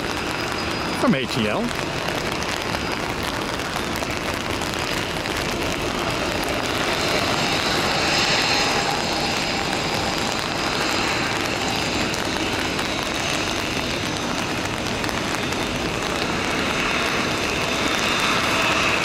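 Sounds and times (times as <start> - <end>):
faint high whine: 0.0 - 4.1
jet engines rushing: 0.0 - 19.0.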